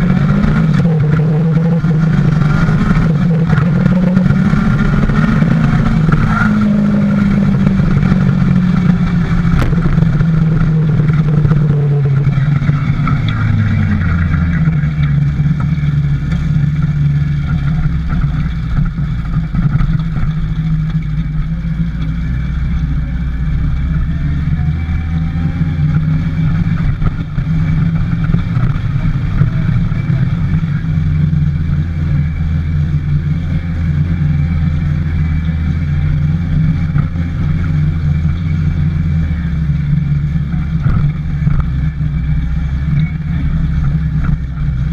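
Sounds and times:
motorcycle engine running: 0:00.0 - 0:44.9.

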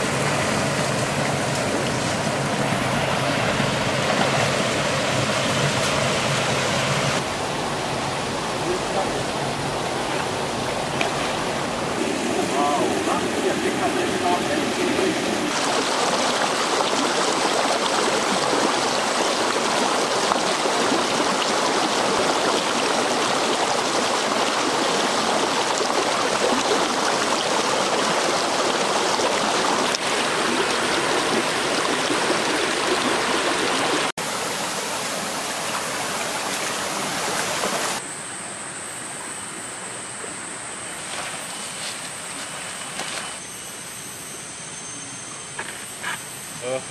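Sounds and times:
stream rushing over rocks: 0:00.0 - 0:38.0.

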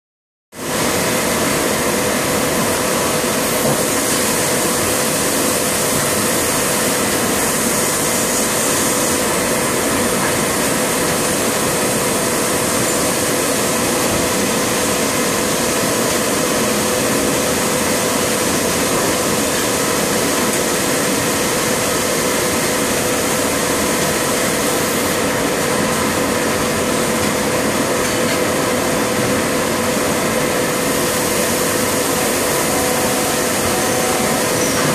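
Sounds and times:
molding machine humming and hissing: 0:00.6 - 0:34.9
held mid-pitched machine tone: 0:31.3 - 0:34.9.

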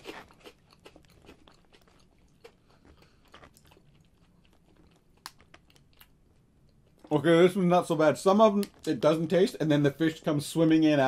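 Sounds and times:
crunching and chewing snack: 0:00.0 - 0:07.1.

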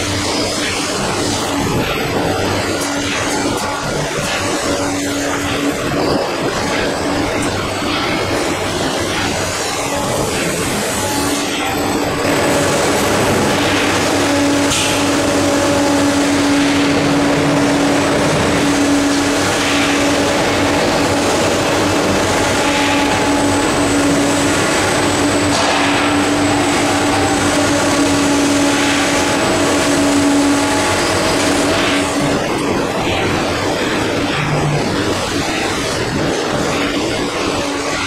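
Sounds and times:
industrial machinery droning: 0:00.0 - 0:38.0.

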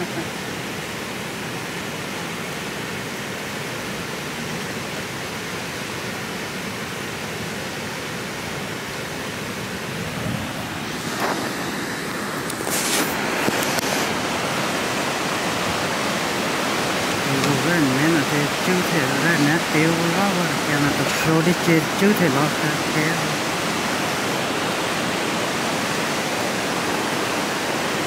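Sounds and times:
water rushing into a spillway: 0:00.0 - 0:28.0.

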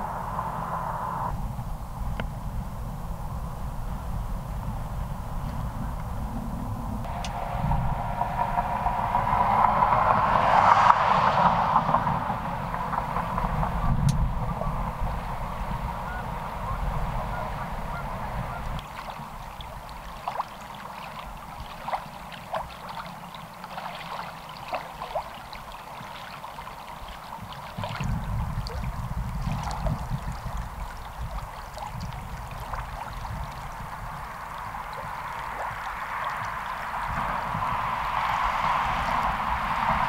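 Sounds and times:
wind rumble on microphone: 0:00.0 - 0:40.0
waterfowl calling: 0:12.6 - 0:27.9.

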